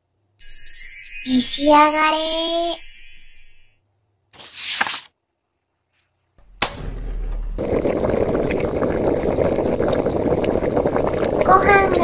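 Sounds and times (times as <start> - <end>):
cartoon pot bubbling and crackling: 6.5 - 12.0.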